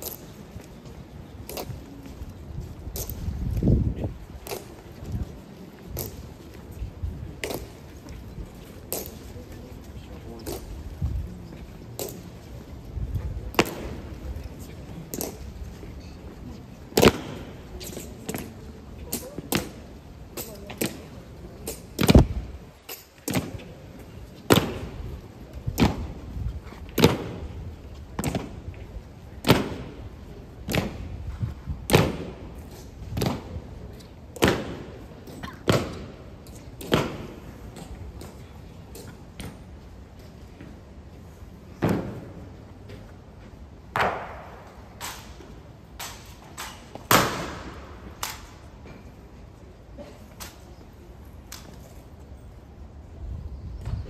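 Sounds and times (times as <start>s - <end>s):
rifle strikes on stone pavement: 13.5s - 14.2s, 17.0s - 18.5s, 43.9s - 45.3s, 46.0s - 48.6s.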